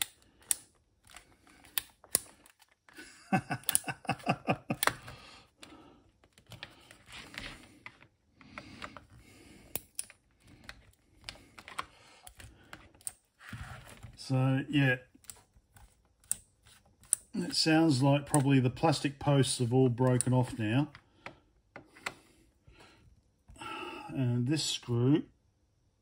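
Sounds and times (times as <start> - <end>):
screwdriver clicks and creaks: 0.0 - 3.0, 3.6 - 14.2, 15.1 - 17.6, 20.0 - 22.2.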